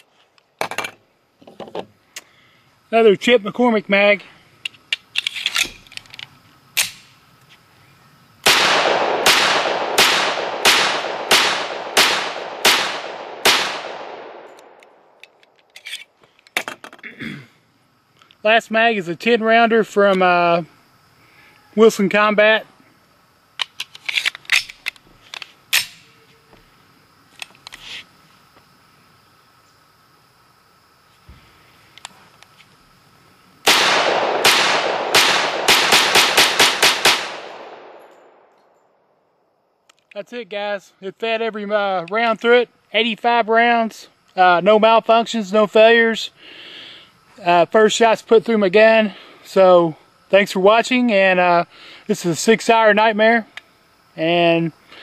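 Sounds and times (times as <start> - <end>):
pistol shots with echo: 8.4 - 15.1, 33.7 - 38.5.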